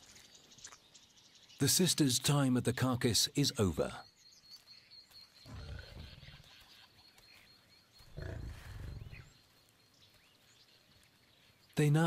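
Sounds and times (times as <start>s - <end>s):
lion growling: 5.4s - 6.5s, 8.1s - 9.3s.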